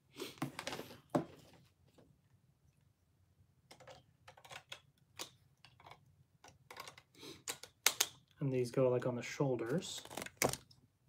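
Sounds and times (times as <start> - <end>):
plastic toy parts clicking: 3.7 - 8.4.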